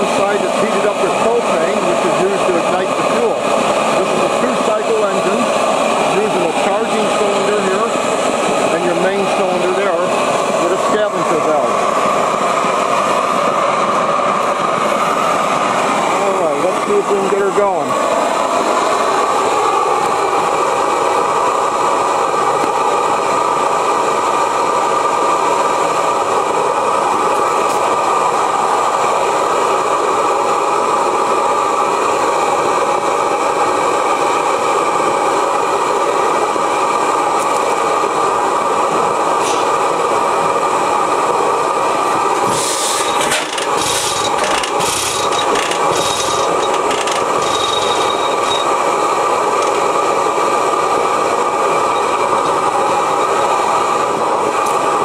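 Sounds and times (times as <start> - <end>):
propane burner roaring: 0.0 - 55.0
short hissing bursts and clicks: 42.4 - 48.7.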